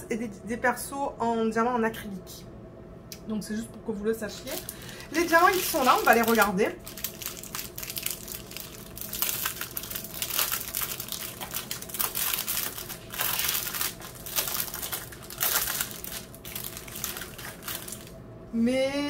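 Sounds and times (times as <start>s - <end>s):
plastic bags crinkling: 4.3s - 18.1s.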